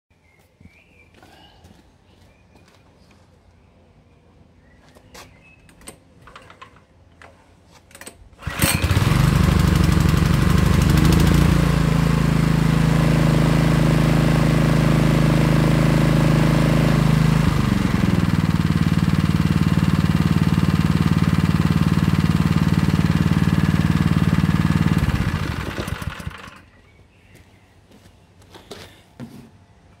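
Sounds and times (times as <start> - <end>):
pressure washer engine running: 8.4 - 26.6.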